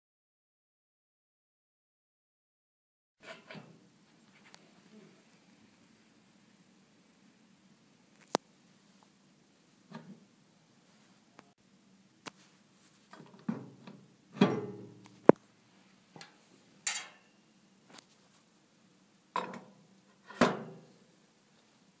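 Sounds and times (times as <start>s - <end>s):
metal rollers clunking: 14.4s - 14.9s.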